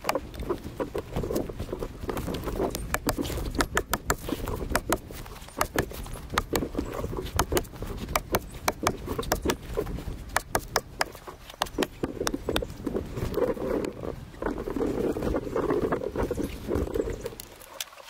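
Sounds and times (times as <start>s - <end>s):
hand tools clicking on log: 0.0s - 14.8s
rustling in dry leaves: 0.0s - 18.0s.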